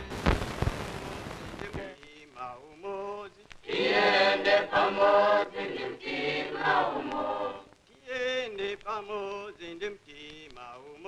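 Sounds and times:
choir singing: 3.6s - 7.7s.

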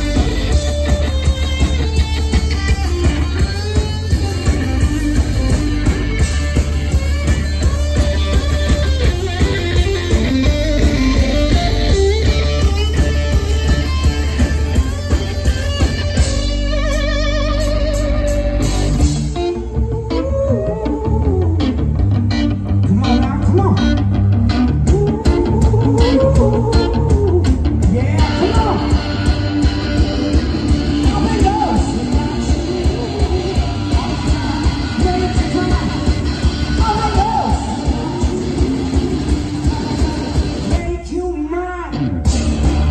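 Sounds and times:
steady drum beat: 0.0s - 19.5s, 24.2s - 41.2s, 42.3s - 42.9s
electric guitar lead line: 0.0s - 42.9s.

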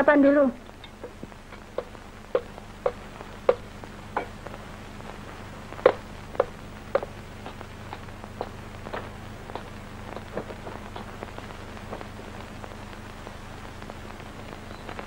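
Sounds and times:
steady low hum: 0.0s - 15.0s
footsteps on stairs: 0.9s - 4.4s, 5.8s - 12.1s.

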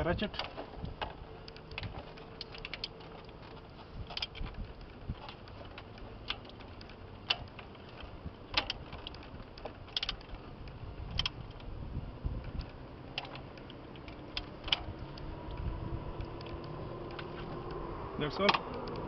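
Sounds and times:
socket ratchet clicking: 4.1s - 11.7s.

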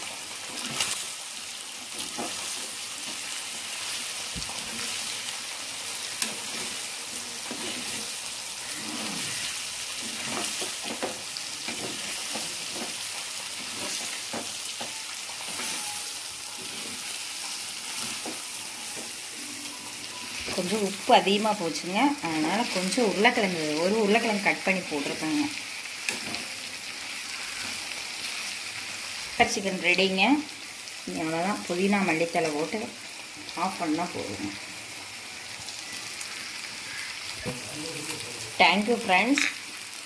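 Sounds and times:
food frying in oil: 0.0s - 40.0s
spoon scraping a pan: 6.1s - 19.2s.

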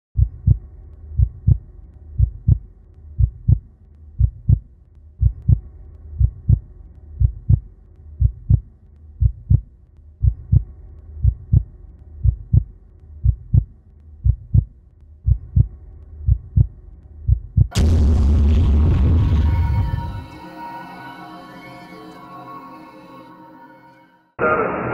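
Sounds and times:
heartbeat double thump: 0.2s - 0.6s, 1.2s - 1.6s, 2.2s - 2.6s, 3.2s - 3.6s, 4.2s - 4.6s, 5.2s - 6.6s, 7.2s - 7.6s, 8.2s - 11.6s, 12.2s - 15.7s, 17.3s - 20.2s
loud electronic music: 17.7s - 23.3s.

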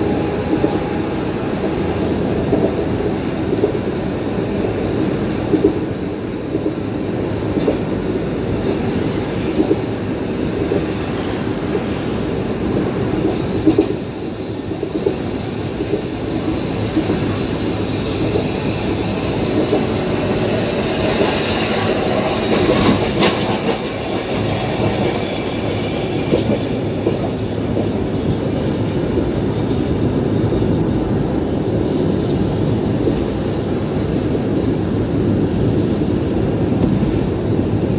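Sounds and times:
road noise: 0.0s - 37.9s
tram wheels rumbling on rails: 0.0s - 37.9s.

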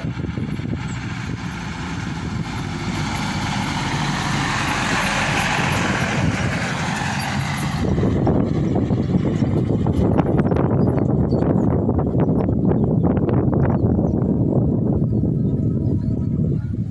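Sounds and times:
truck diesel engine running: 0.0s - 13.0s.

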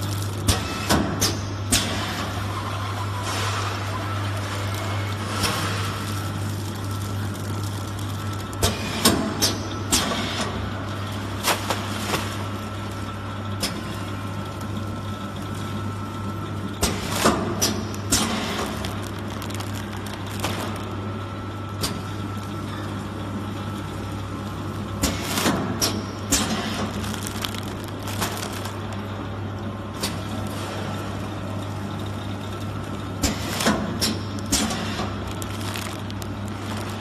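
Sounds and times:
plastic packets clicking and crinkling: 0.0s - 1.4s, 4.7s - 9.7s, 16.8s - 21.0s, 25.0s - 29.2s, 33.2s - 37.0s
packaging machine humming: 0.0s - 37.0s.

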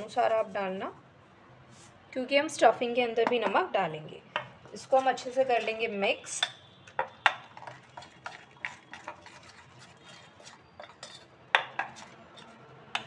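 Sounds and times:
spoon stirring batter in bowl: 4.4s - 13.0s.

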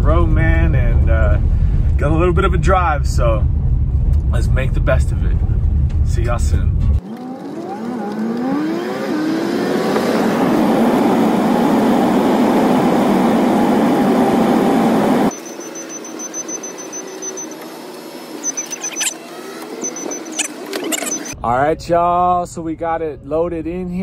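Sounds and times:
van engine and road noise: 0.0s - 24.0s.

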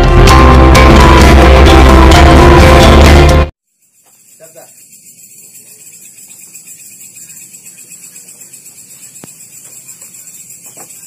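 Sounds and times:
crickets trilling: 3.6s - 11.0s.

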